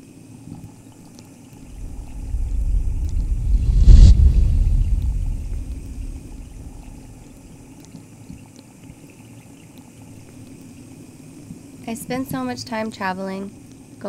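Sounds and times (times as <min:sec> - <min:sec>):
deep underwater rumble: 0:01.7 - 0:07.3
low murmur of water: 0:05.5 - 0:14.0.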